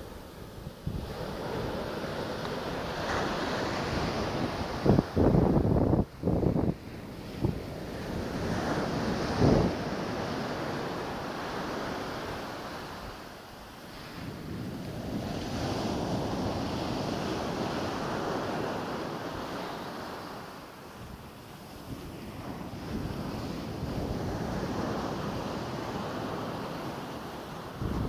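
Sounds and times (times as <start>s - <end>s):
surf breaking on beach: 0.0s - 28.0s
wind rumbling on microphone: 0.0s - 28.0s.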